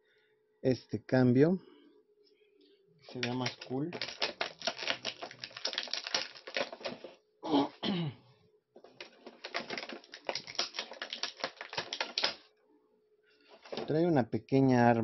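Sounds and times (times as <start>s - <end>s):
plastic blister tray crackling: 3.1s - 7.2s, 8.9s - 12.4s, 13.5s - 14.0s
person clearing throat: 7.4s - 8.2s.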